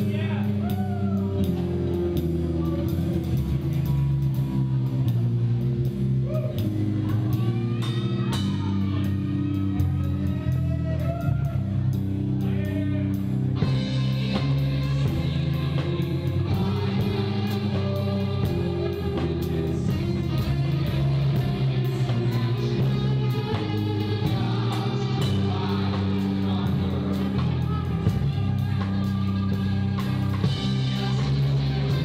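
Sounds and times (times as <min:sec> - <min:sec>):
bass notes: 0:00.0 - 0:32.0
drum kit beat: 0:00.0 - 0:32.0
electric guitar: 0:00.0 - 0:32.0
person singing: 0:06.2 - 0:32.0.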